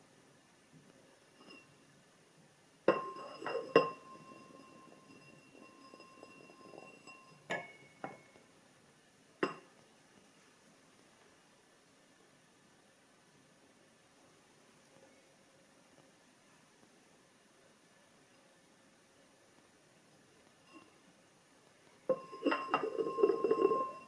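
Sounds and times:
olive rattling inside glass: 2.9s - 7.7s, 22.1s - 24.0s
glass clinking on wooden board: 2.9s - 8.3s, 9.4s - 9.7s, 22.1s - 24.0s
olive clinking into glass: 2.9s - 8.3s, 9.4s - 9.6s, 22.1s - 24.0s
glass ringing: 2.9s - 8.4s, 9.4s - 9.6s, 22.1s - 24.0s.

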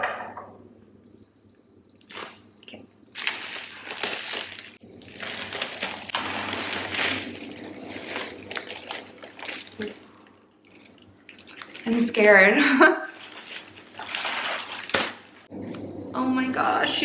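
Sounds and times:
plastic wrap crinkling: 2.0s - 15.5s
scissors cutting plastic wrap: 3.2s - 9.7s.

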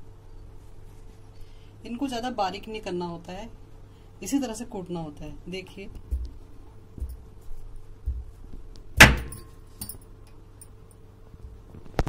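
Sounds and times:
stone pounding potatoes: 8.0s - 9.5s
sharp stone knock: 9.0s - 9.5s.

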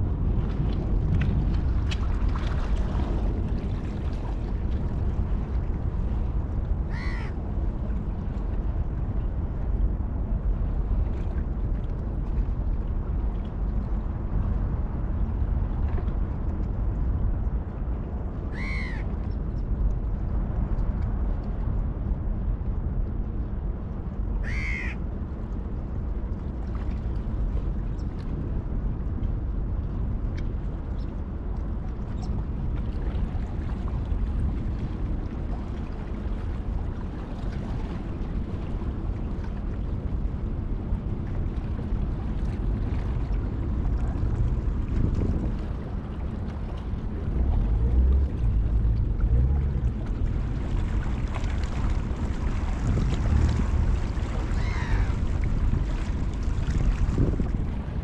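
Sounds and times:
water lapping: 0.0s - 8.8s, 18.4s - 19.2s, 30.8s - 58.0s
wind rumble: 0.0s - 58.0s
bird calls: 18.6s - 19.0s, 24.4s - 25.0s.

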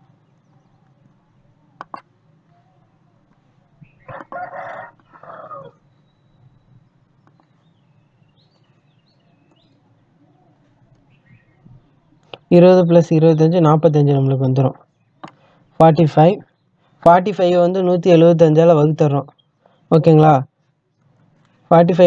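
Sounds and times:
faint chirps: 0.0s - 12.4s
loud animal call: 4.0s - 5.9s.

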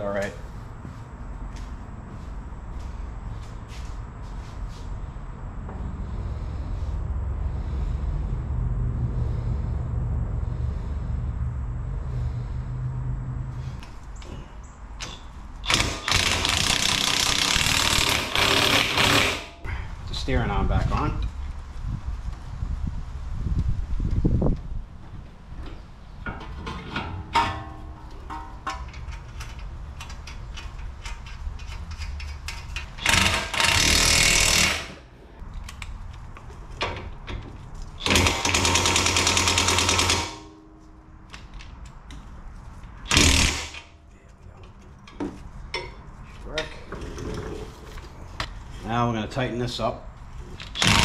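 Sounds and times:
impact wrench hammering: 15.6s - 19.6s, 33.0s - 35.0s, 38.0s - 40.8s, 43.1s - 43.8s, 50.7s - 51.0s
tools clicking and knocking: 26.2s - 35.0s, 36.8s - 40.5s.

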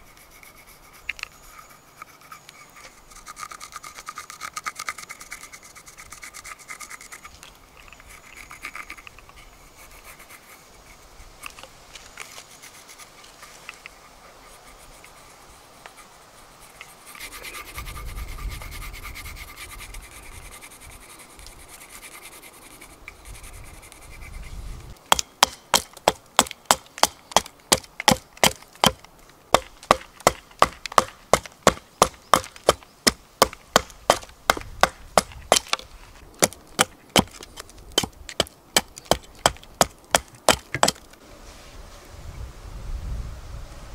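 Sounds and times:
pencil scratching on wood: 0.0s - 11.6s, 14.0s - 24.6s
hatchet chopping wood: 25.0s - 41.1s.

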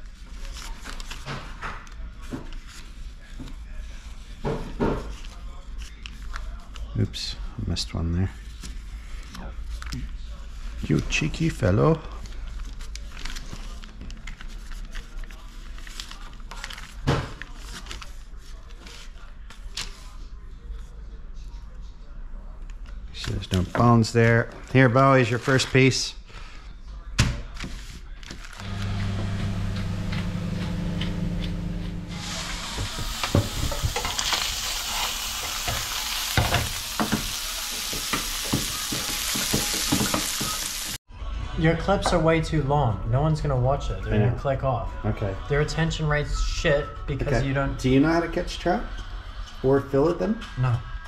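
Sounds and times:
paper rustling: 0.0s - 4.1s, 12.1s - 20.9s, 24.5s - 26.0s, 27.5s - 40.6s
low steady hum: 28.6s - 32.7s
fish sizzling in a frying pan: 32.4s - 41.0s.

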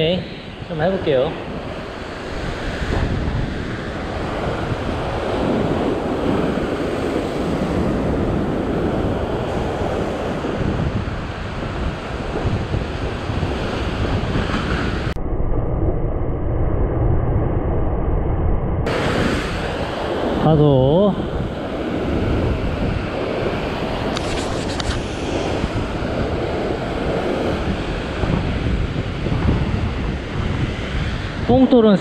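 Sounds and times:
sea surf breaking on rocks: 0.0s - 15.2s, 18.9s - 32.0s
wind buffeting microphone: 0.0s - 32.0s
wave bursting into spray: 18.8s - 31.6s.

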